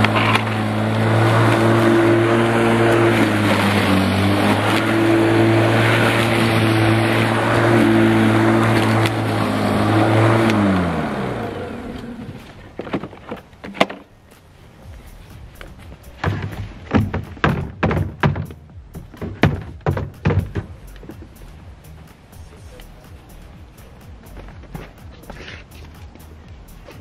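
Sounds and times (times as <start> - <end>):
electric lawn mower cutting grass: 0.0 - 15.2
knocks and clicks: 15.6 - 21.6.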